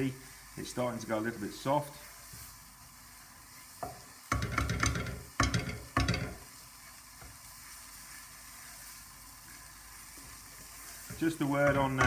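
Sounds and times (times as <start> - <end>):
onion and garlic frying in oil: 0.0 - 12.0
wooden spoon scraping a pot: 3.5 - 12.0.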